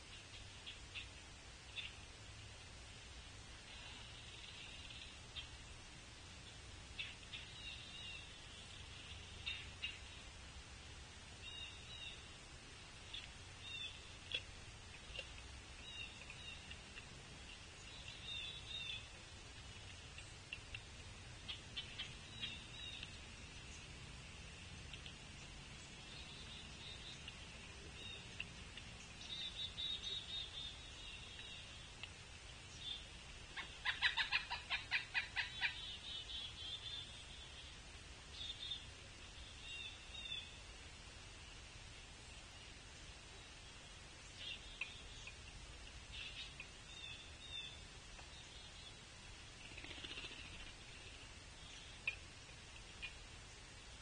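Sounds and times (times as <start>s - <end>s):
woodpecker calling: 13.1s - 23.2s, 33.6s - 37.4s, 49.6s - 52.2s
faint high bird chirps: 29.1s - 31.9s.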